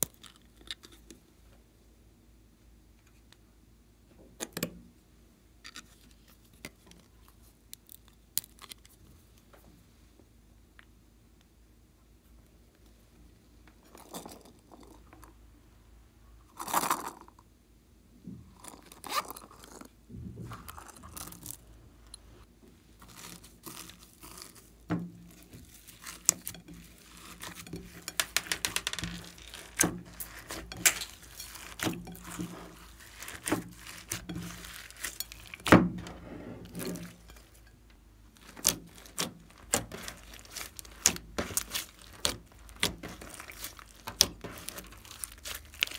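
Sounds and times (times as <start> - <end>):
hands squishing glittery slime: 23.0 - 37.7, 38.4 - 45.9
slime popping: 38.4 - 45.9.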